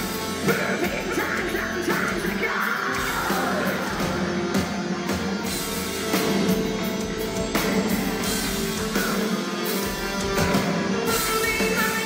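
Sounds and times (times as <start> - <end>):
metal band playing live: 0.0 - 12.0
woman singing lead vocal: 0.4 - 4.4.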